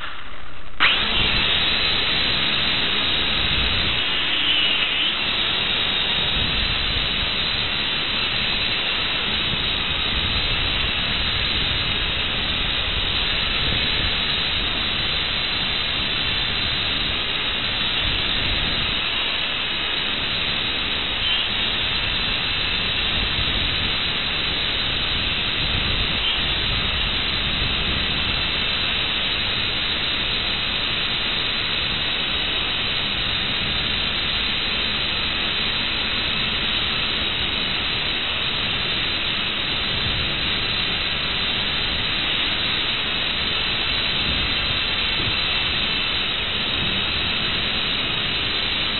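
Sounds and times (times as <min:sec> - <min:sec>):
steady hiss: 0:00.0 - 0:48.9.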